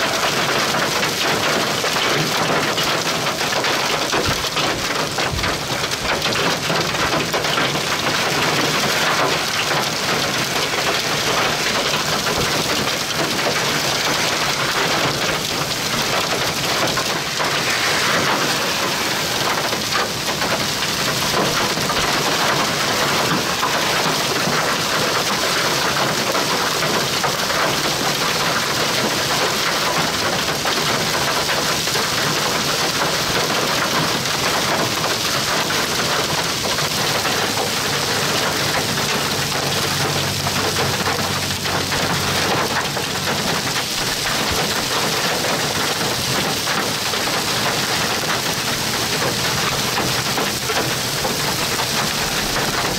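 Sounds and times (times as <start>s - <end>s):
heavy rain hiss: 0.0s - 52.9s
raindrops pattering on surfaces: 0.0s - 52.9s.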